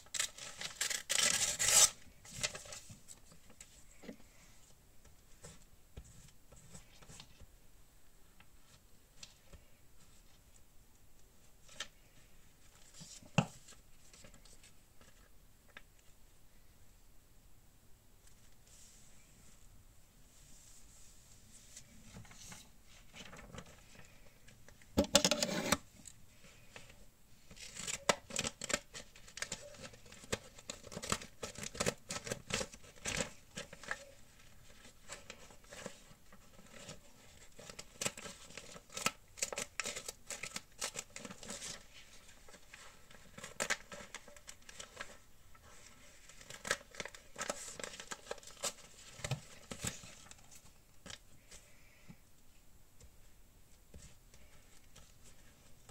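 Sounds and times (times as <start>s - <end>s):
paper crinkling and rustling: 0.0s - 4.2s, 21.5s - 51.9s, 53.8s - 55.9s.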